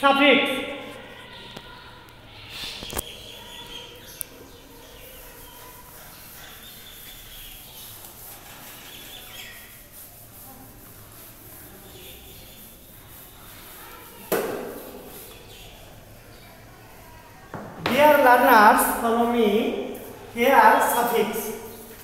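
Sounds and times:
duster rubbing a blackboard: 0:04.7 - 0:15.6, 0:17.8 - 0:22.0
sharp knocks: 0:14.3 - 0:14.8.

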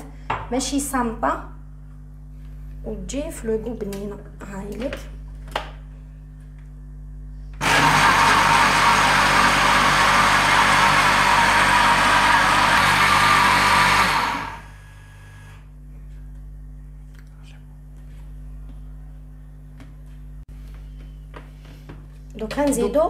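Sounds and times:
blender motor running: 0:07.6 - 0:15.8.

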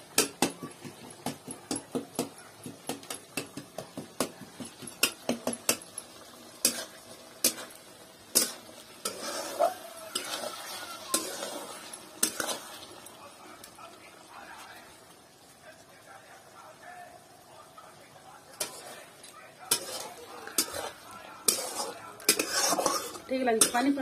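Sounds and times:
soft sizzle from pan: 0:00.0 - 0:24.0
metal spatula scraping pan: 0:06.6 - 0:13.0, 0:18.6 - 0:19.1, 0:19.7 - 0:24.0.

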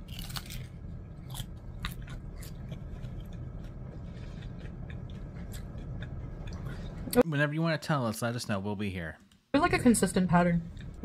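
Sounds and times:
crunching hard taco shell: 0:00.0 - 0:03.4.

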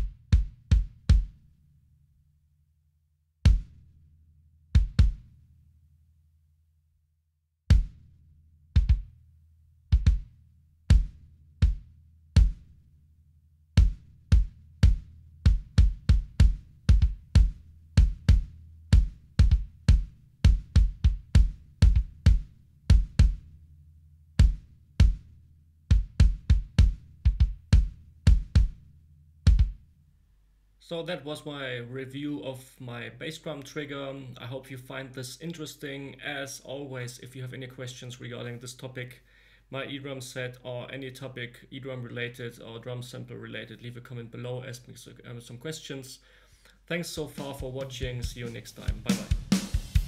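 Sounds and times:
kick drum strokes: 0:00.0 - 0:01.6, 0:03.4 - 0:04.0, 0:04.7 - 0:05.4, 0:07.7 - 0:09.2, 0:09.9 - 0:12.9, 0:13.8 - 0:29.9, 0:47.2 - 0:50.0.

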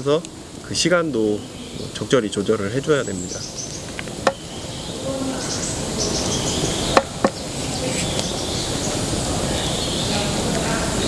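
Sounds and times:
birds chirping: 0:00.0 - 0:11.0
steady hiss: 0:00.0 - 0:11.0
metal pot knocking on wooden hook: 0:04.2 - 0:04.4, 0:07.0 - 0:07.4.

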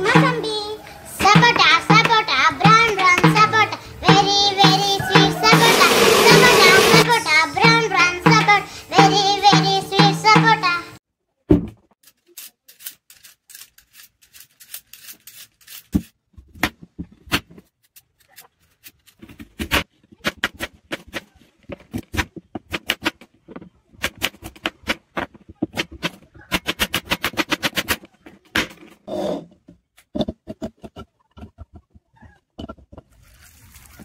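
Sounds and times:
peeler scraping carrot: 0:12.0 - 0:16.2.

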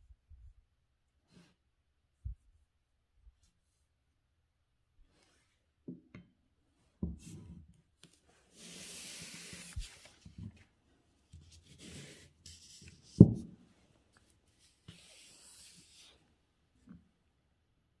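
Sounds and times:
paper sliding and rustling: 0:08.1 - 0:10.7, 0:14.6 - 0:16.2.

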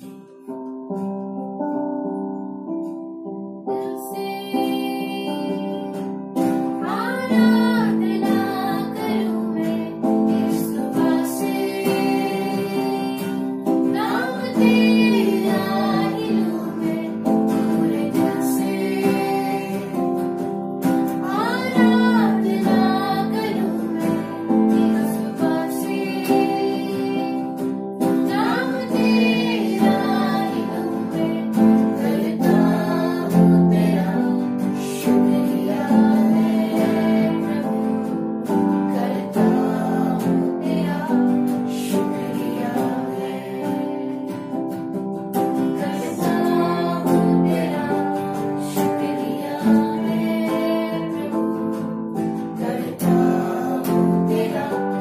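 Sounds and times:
strummed acoustic guitar: 0:00.0 - 0:01.5, 0:03.8 - 0:55.0
woman singing worship song: 0:03.8 - 0:06.0, 0:06.8 - 0:20.4, 0:21.2 - 0:44.5, 0:45.6 - 0:51.8, 0:52.4 - 0:55.0.

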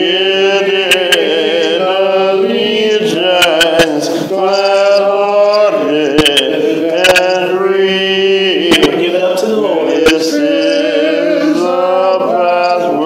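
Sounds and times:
voices singing a hymn: 0:00.0 - 0:13.0.

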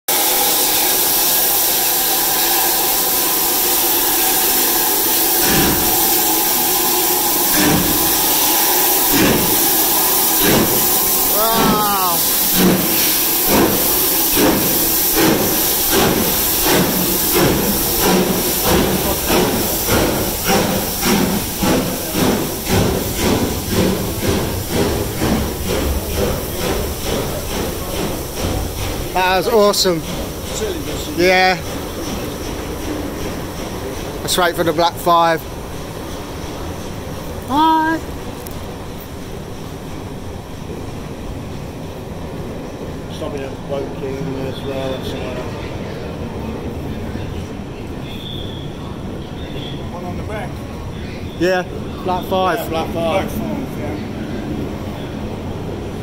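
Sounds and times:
deep steam whooshes: 0:00.1 - 0:37.4
steam locomotive hissing: 0:00.1 - 0:56.0
train coaches rolling past: 0:00.1 - 0:56.0.

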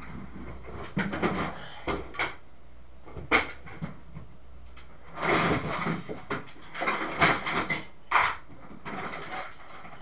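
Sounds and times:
rubbing and scraping: 0:05.0 - 0:10.0.

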